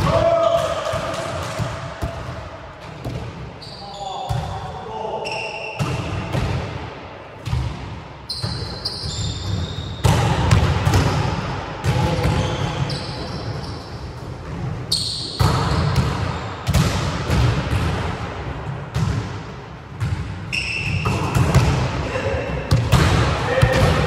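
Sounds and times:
sneakers squeaking on floor: 0:03.0 - 0:04.5, 0:05.2 - 0:06.2, 0:08.3 - 0:10.6, 0:11.9 - 0:16.5, 0:20.0 - 0:21.7.

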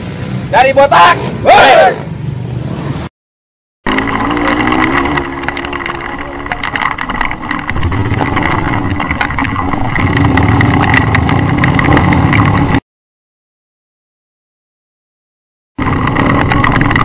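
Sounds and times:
dirt bike engines running: 0:03.9 - 0:12.8, 0:15.8 - 0:17.0.

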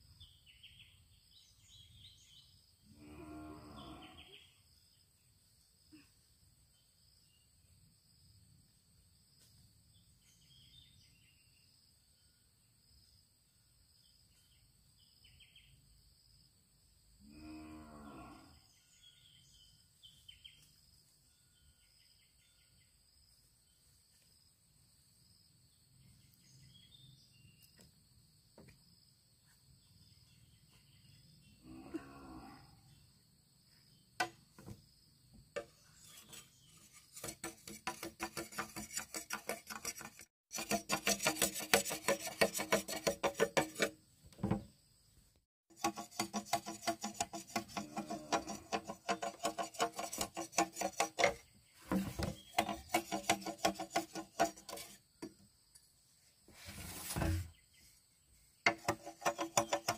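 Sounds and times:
fast scraping strokes: 0:35.6 - 0:44.0, 0:45.7 - 0:55.0, 0:58.7 - 0:59.9.

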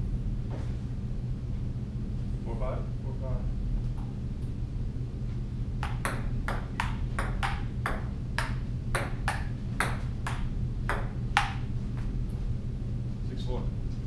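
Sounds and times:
ping-pong ball clicking: 0:05.8 - 0:11.6.

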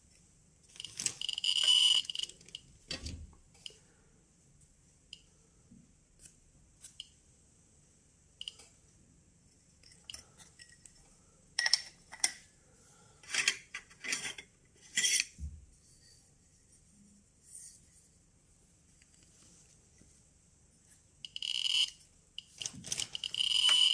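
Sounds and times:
metallic clinks and scrapes: 0:09.8 - 0:11.0, 0:13.2 - 0:16.4.

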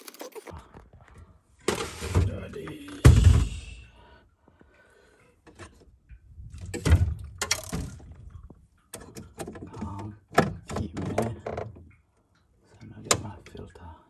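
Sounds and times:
loud thump: 0:03.0 - 0:03.8.

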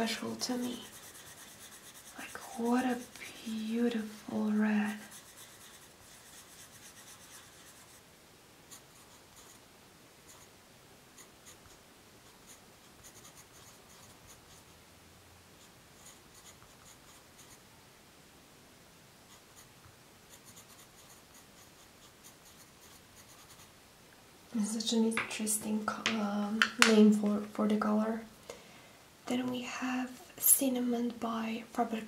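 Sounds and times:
pencil scribbling on paper: 0:00.0 - 0:08.0, 0:08.7 - 0:09.6, 0:10.3 - 0:10.5, 0:11.2 - 0:14.8, 0:15.6 - 0:17.6, 0:20.3 - 0:23.7
pencil writing strokes: 0:00.0 - 0:08.0, 0:08.7 - 0:09.6, 0:10.3 - 0:10.5, 0:11.2 - 0:14.8, 0:15.6 - 0:17.6, 0:20.3 - 0:23.7.

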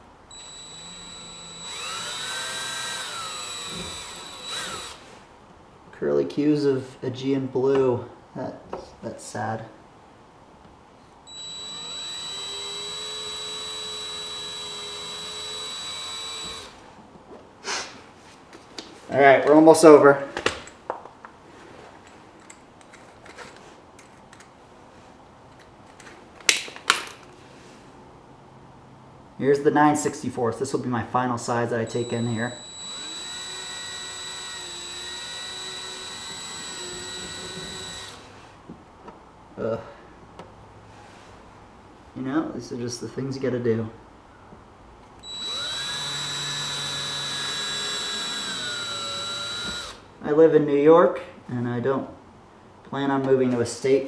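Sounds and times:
drill motor whining: 0:00.3 - 0:05.0, 0:11.3 - 0:16.8, 0:31.9 - 0:38.2, 0:45.2 - 0:50.0.

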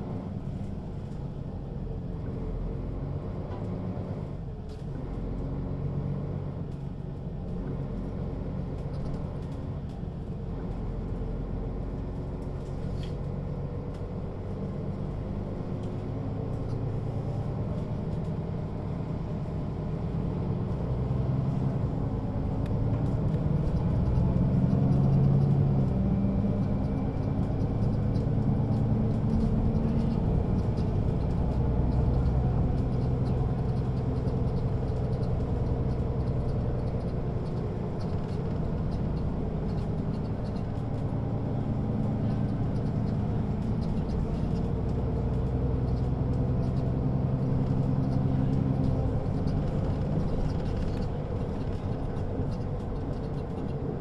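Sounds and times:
bus diesel engine hum: 0:00.0 - 0:54.0.

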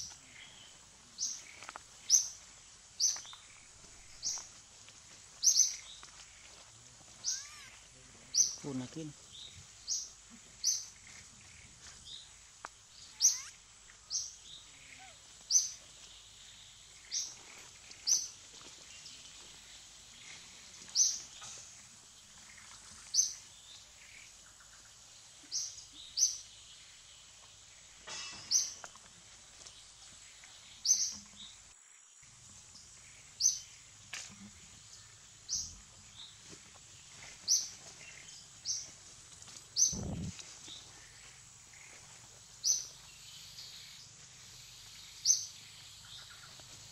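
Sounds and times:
bird chirping: 0:00.0 - 0:04.6, 0:05.3 - 0:27.1, 0:28.1 - 0:29.0, 0:30.3 - 0:31.6, 0:32.7 - 0:38.9, 0:39.7 - 0:42.0, 0:42.6 - 0:46.9
forest background hiss: 0:00.0 - 0:46.9.

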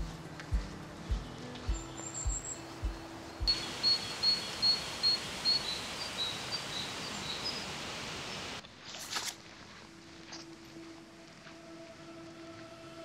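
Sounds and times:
outdoor background hiss: 0:00.0 - 0:13.0
bird calling: 0:01.2 - 0:08.6.

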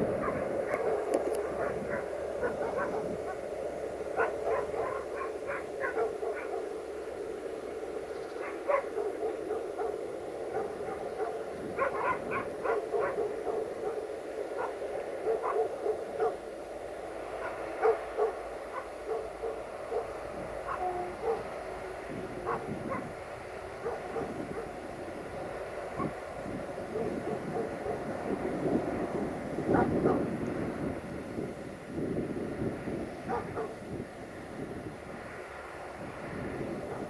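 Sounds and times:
dogs barking: 0:00.1 - 0:03.5, 0:04.1 - 0:06.9, 0:08.4 - 0:16.5, 0:17.3 - 0:24.9, 0:25.7 - 0:28.4, 0:29.7 - 0:30.3, 0:33.2 - 0:33.8, 0:36.8 - 0:37.0.

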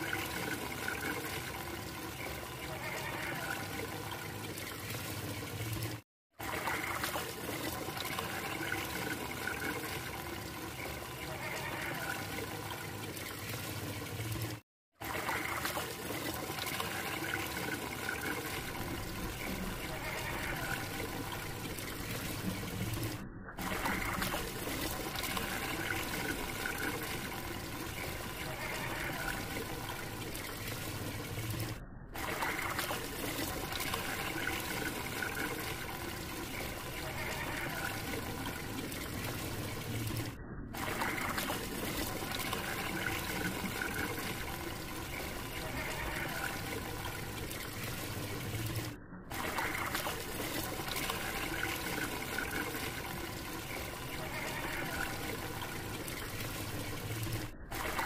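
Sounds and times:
water swirling down a drain: 0:00.0 - 0:58.0.

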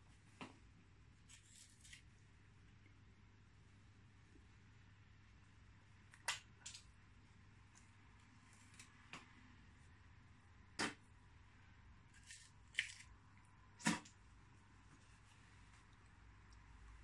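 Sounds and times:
charred wood crunching: 0:12.1 - 0:13.2.

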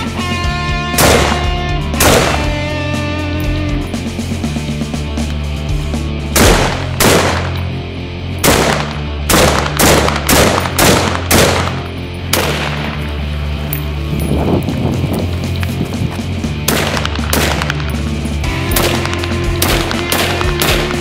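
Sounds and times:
background music: 0:00.0 - 0:21.0
rifle shots: 0:01.0 - 0:02.6, 0:06.4 - 0:07.6, 0:08.4 - 0:13.0, 0:16.6 - 0:17.9, 0:18.7 - 0:21.0.

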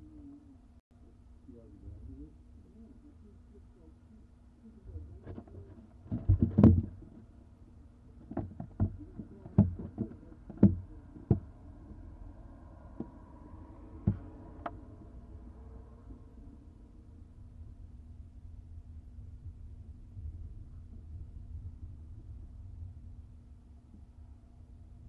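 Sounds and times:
knocks on wooden nest box: 0:05.3 - 0:07.2, 0:08.2 - 0:11.6, 0:14.0 - 0:14.4.

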